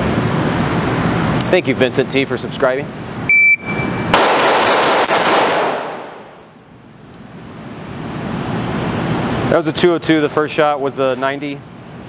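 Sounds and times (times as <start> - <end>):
shot timer beep: 3.3 - 4.1
pistol shots echoing indoors: 4.1 - 6.4.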